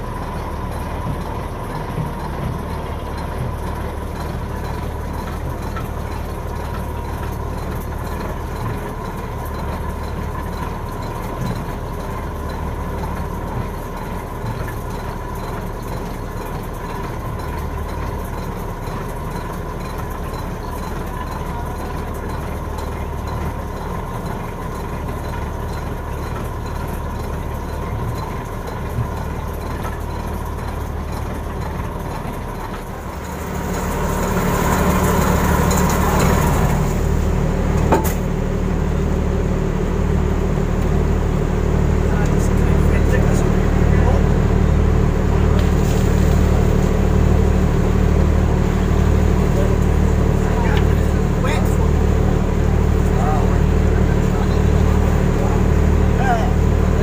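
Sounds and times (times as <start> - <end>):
boat engine droning: 0.0 - 57.0
steady whine: 32.6 - 57.0.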